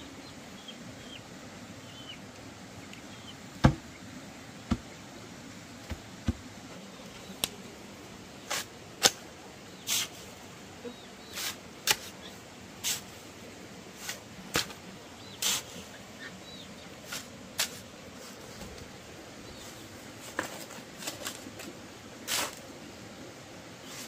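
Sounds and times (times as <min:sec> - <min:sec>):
sharp wooden knocks: 0:03.6 - 0:03.9.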